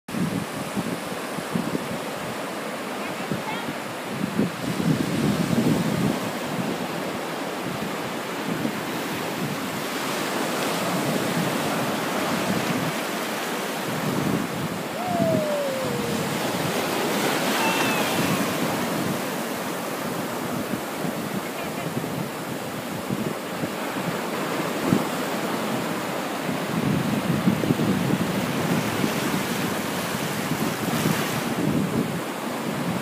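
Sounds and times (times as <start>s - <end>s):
ocean surf breaking on sand: 0.1s - 33.0s
wind buffeting microphone: 0.1s - 33.0s.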